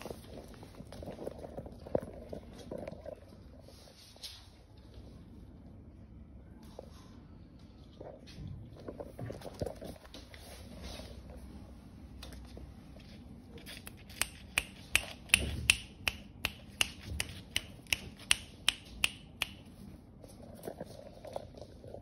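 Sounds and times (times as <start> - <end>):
fingers snapping: 13.7 - 19.7.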